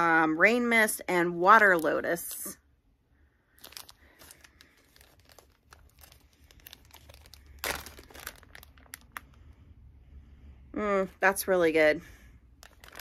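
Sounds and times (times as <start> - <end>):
plastic bag crinkling: 3.5 - 9.4, 12.6 - 13.0.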